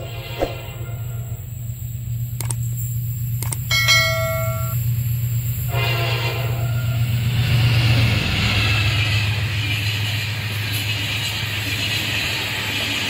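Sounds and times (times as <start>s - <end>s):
train horn: 0.0s - 1.5s, 5.6s - 9.0s
low diesel engine drone: 0.0s - 12.7s
train rumble and rail noise: 0.0s - 13.0s.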